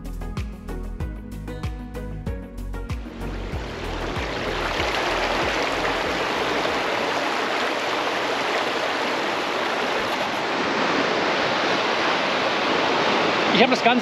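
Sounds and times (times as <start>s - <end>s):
water rushing down weir chute: 3.4s - 14.0s.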